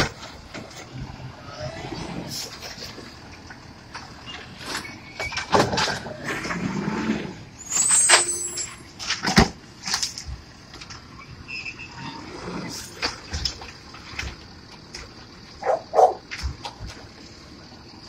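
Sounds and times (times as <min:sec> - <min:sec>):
bangs and knocks of carts: 0:00.0 - 0:01.2, 0:03.9 - 0:11.1, 0:12.4 - 0:17.2
truck engine running: 0:00.0 - 0:18.0
high squeal: 0:07.5 - 0:09.0, 0:11.2 - 0:13.0.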